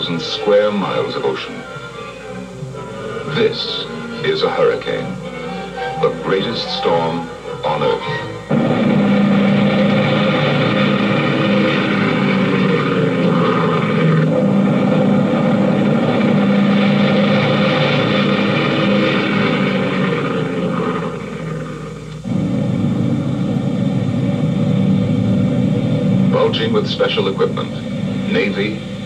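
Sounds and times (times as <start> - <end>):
propeller aircraft engines running: 8.5 - 29.0.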